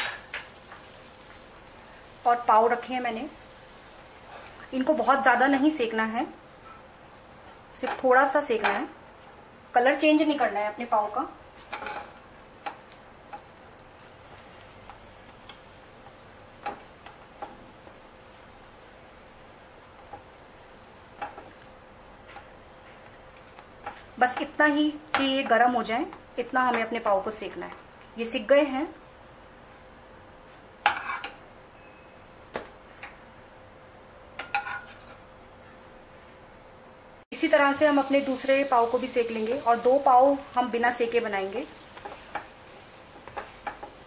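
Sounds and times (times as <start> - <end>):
faint butter sizzle: 0.3 - 27.6, 37.3 - 44.0
spatula scraping frying pan: 11.6 - 12.2, 30.9 - 31.4, 34.4 - 35.2
spatula tapping frying pan: 41.9 - 44.0.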